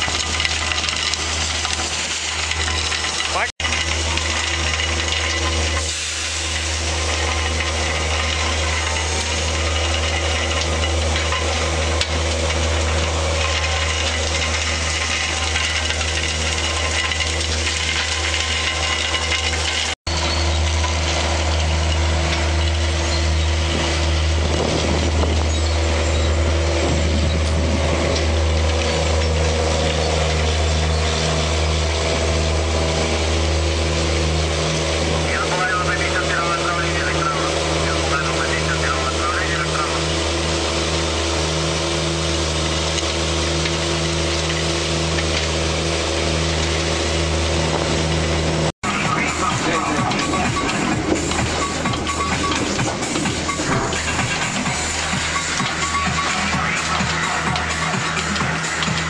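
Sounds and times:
vacuum cleaning machine drone: 20.1s - 59.0s.

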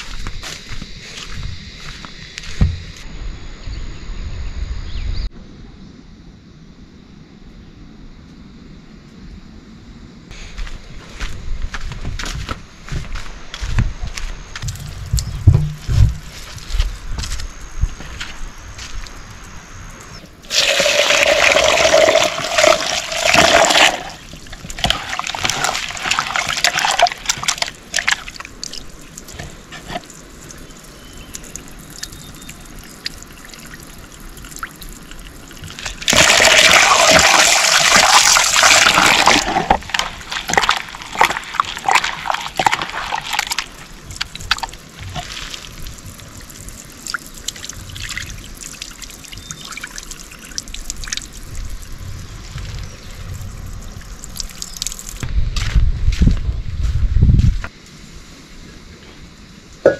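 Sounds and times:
knocks: 15.2s - 16.3s
water splashing and sloshing: 20.3s - 55.3s
water pouring into vessel: 20.4s - 51.6s.

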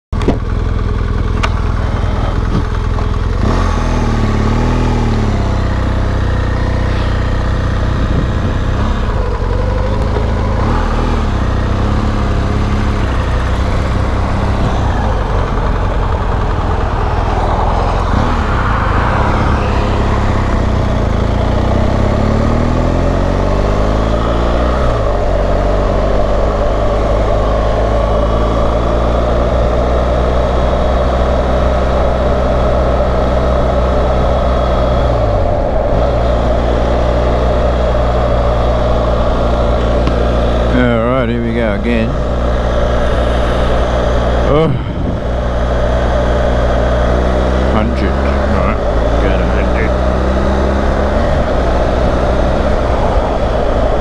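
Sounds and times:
wind and road noise: 0.1s - 54.0s
motorcycle engine revving: 0.2s - 54.0s.

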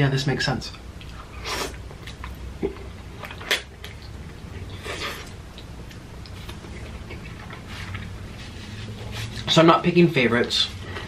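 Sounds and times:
mouth smacks: 1.0s - 8.1s
wet chewing: 1.0s - 9.5s.

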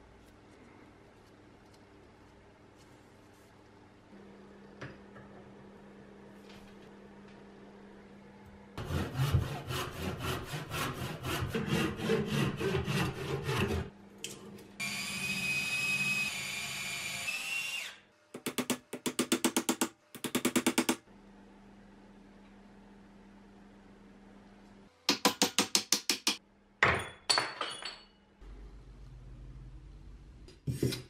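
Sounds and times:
electric drill running: 14.8s - 18.0s.

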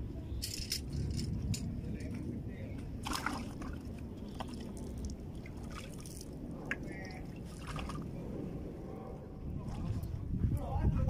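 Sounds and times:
steady low rumble: 0.0s - 11.0s
water trickling and dripping: 3.0s - 8.1s.

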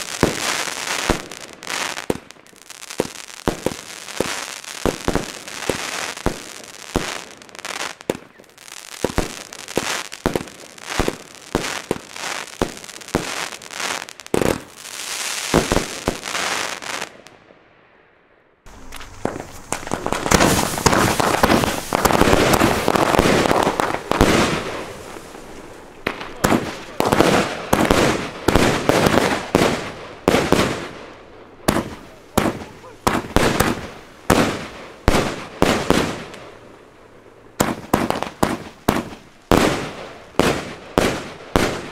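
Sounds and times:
firework launch bangs and bursts: 0.0s - 8.4s, 9.0s - 17.2s, 18.7s - 31.0s, 31.6s - 36.6s, 37.6s - 41.9s
firework crackling hiss: 0.0s - 17.1s, 18.7s - 31.0s.

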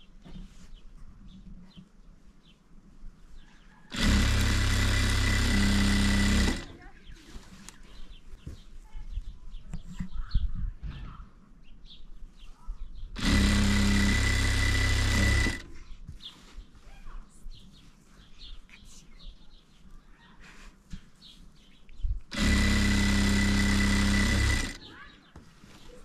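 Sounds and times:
electric sewing machine running: 3.9s - 6.8s, 13.2s - 15.7s, 22.3s - 24.9s
birds chirping faintly: 6.8s - 13.2s, 15.1s - 26.0s.

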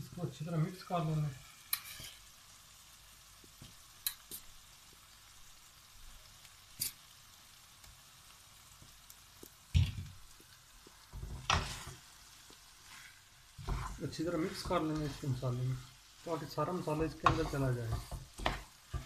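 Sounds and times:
food sizzling in a frying pan: 0.0s - 19.0s
utensils clicking against pan: 4.0s - 4.4s
wooden spoon knocking and scraping: 11.1s - 12.0s, 13.6s - 19.0s.

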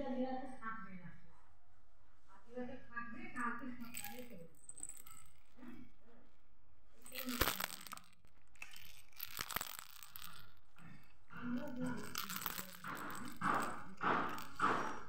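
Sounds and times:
plastic toys knocking and rattling: 3.4s - 5.9s, 7.0s - 15.0s.

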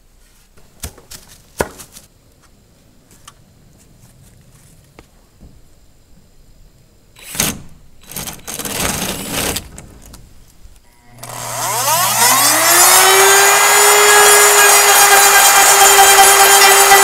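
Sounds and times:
cordless drill boring into plastic: 7.2s - 9.7s, 11.2s - 17.0s
rotary cutting tool high whine: 10.8s - 17.0s.

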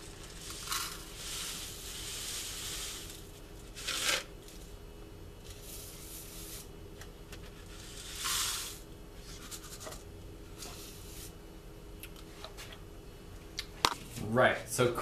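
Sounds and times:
dry oats pouring into saucepan: 0.0s - 4.7s, 5.4s - 6.7s, 7.6s - 8.9s
faint steady hum: 0.0s - 15.0s.

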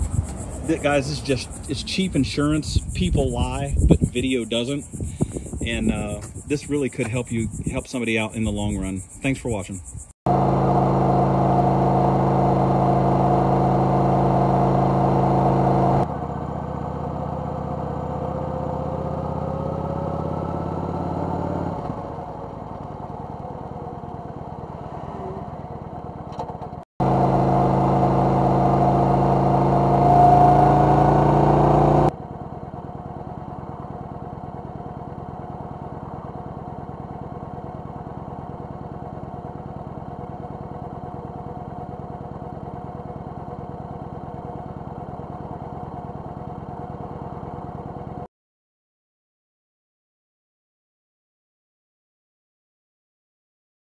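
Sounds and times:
motorcycle engine running: 0.0s - 48.3s.

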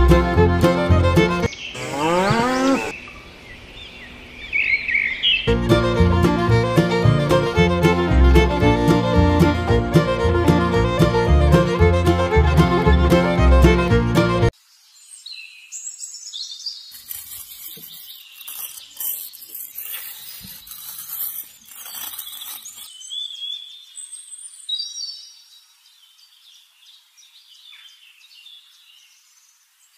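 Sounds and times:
birds chirping: 1.4s - 5.6s
scraping in sand: 16.9s - 22.9s.

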